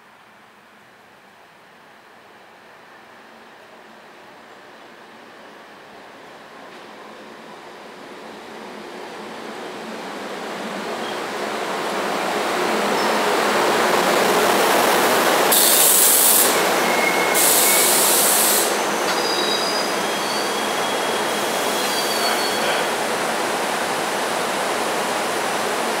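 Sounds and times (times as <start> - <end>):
train wheels rumbling on rail: 4.3 - 26.0
loud hiss bursts: 15.4 - 19.2
thin high squeals: 19.1 - 22.8.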